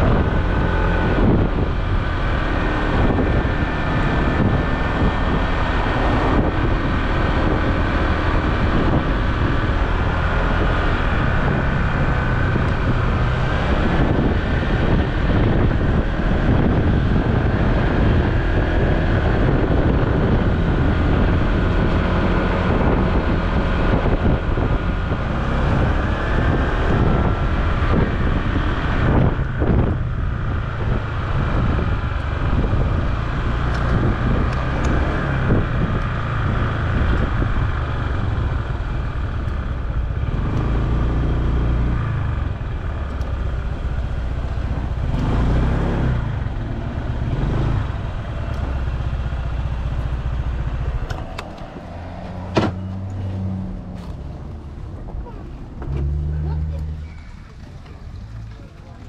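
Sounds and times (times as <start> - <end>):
wind noise: 0.0 - 58.5
scooter engine running: 26.0 - 52.5.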